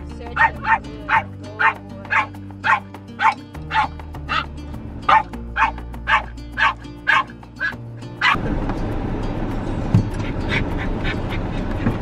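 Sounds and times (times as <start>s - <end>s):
background music: 0.0s - 11.8s
small dog barking: 0.4s - 4.4s, 5.1s - 8.4s.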